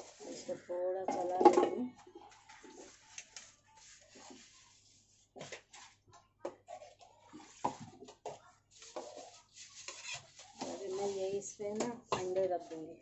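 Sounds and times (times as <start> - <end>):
metal spoon stirring rice in pot: 6.6 - 12.9.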